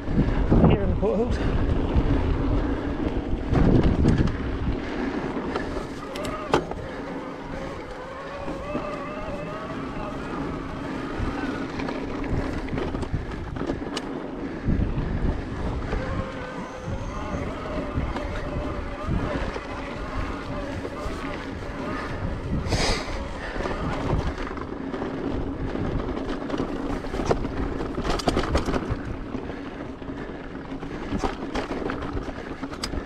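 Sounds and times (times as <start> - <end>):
tyres rolling on dirt: 0.0 - 33.0
wind buffeting microphone: 0.0 - 33.0
electric bike motor whining: 1.5 - 33.0
bike knocks and rattles: 1.7 - 4.5, 23.4 - 33.0.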